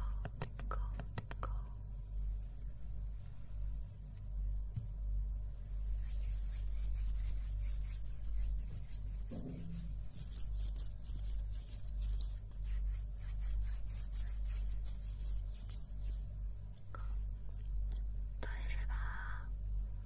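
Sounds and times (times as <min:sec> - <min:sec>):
steady low hum: 0:00.0 - 0:20.0
hands rubbing against microphone: 0:05.9 - 0:16.5.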